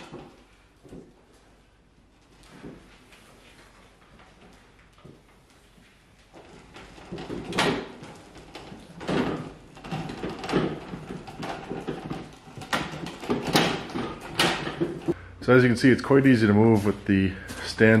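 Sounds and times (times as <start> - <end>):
casters rolling and rattling on concrete: 2.3 - 15.2.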